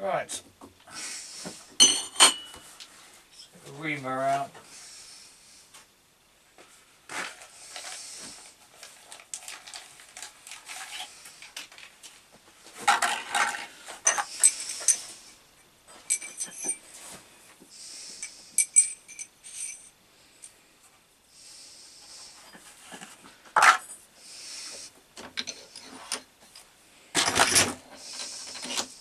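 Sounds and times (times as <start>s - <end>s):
metal tools clinking and rattling: 1.8s - 2.6s, 12.9s - 15.2s, 16.0s - 16.8s, 18.2s - 19.9s, 25.4s - 26.2s, 27.2s - 28.9s.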